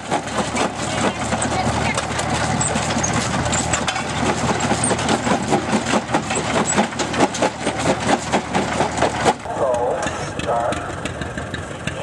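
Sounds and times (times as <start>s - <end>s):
rock crusher clattering: 0.0s - 9.5s
tractor engine running: 0.0s - 12.0s.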